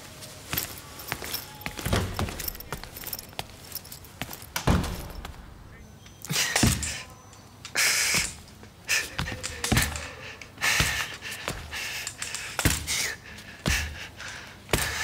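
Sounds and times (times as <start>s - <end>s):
man gasping for breath: 8.9s - 15.0s.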